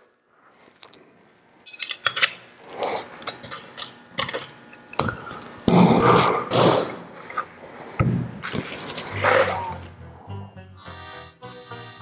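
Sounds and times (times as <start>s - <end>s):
metal parts clicking and clinking: 1.6s - 2.4s.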